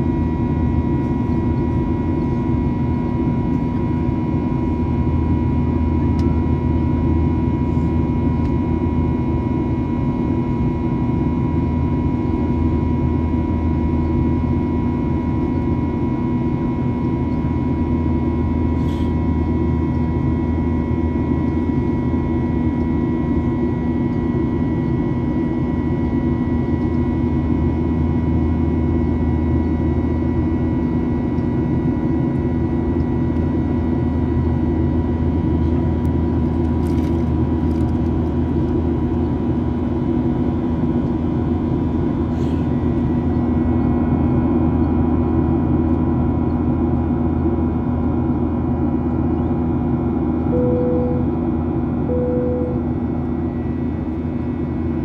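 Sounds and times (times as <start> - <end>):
steady hum tones: 0.0 - 15.6, 38.6 - 55.0
airplane cabin engine rush: 0.0 - 55.0.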